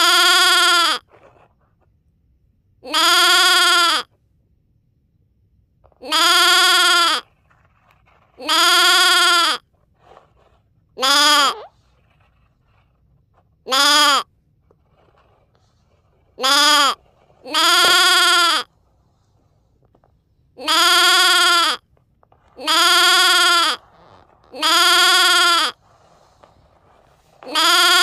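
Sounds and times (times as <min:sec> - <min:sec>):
animal bleating: 0:00.0 - 0:01.1, 0:02.8 - 0:04.1, 0:06.0 - 0:07.2, 0:08.4 - 0:09.6, 0:11.0 - 0:11.7, 0:13.7 - 0:14.3, 0:16.4 - 0:18.7, 0:20.6 - 0:21.9, 0:22.6 - 0:25.8, 0:27.4 - 0:28.0.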